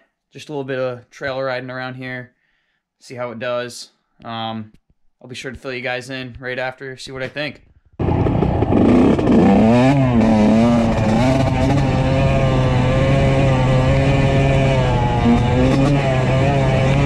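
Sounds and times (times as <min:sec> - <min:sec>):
two-stroke motorbike engine revving: 0:08.0 - 0:17.0.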